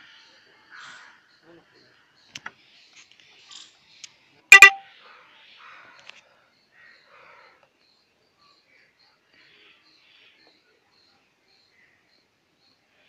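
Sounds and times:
vehicle horn beeps: 0:04.5 - 0:04.8.

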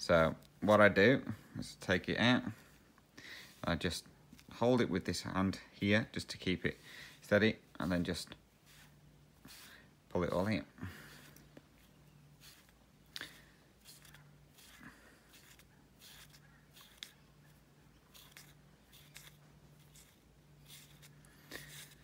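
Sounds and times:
floss rustling and ticking: 0:11.1 - 0:22.0.

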